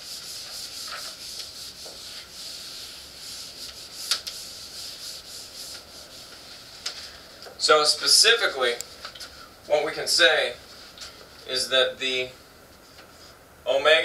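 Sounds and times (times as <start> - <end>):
eraser wiping whiteboard: 0.0 - 7.0.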